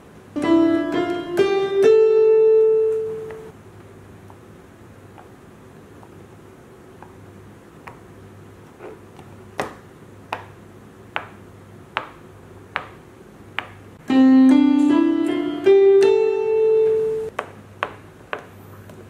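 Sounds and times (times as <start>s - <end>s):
electronic keyboard notes stepping upward: 0.4s - 3.5s, 14.0s - 17.3s.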